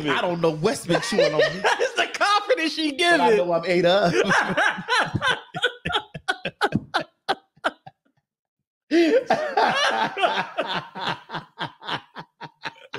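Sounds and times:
woman laughing: 0.0 - 2.1, 4.2 - 7.9, 9.1 - 12.9.

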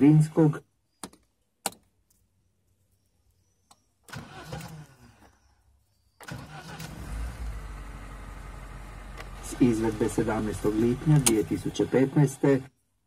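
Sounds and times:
starter motor cranking engine: 4.1 - 5.2, 6.2 - 12.7.

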